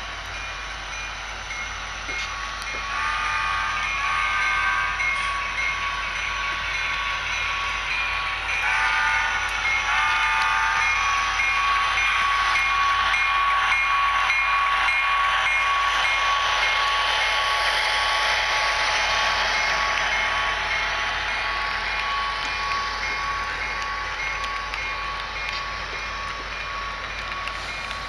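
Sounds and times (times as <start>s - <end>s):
model train rolling hiss: 0.0s - 28.0s
train bell ringing: 0.0s - 28.0s
model train horn blasts: 2.8s - 6.6s, 8.5s - 12.6s.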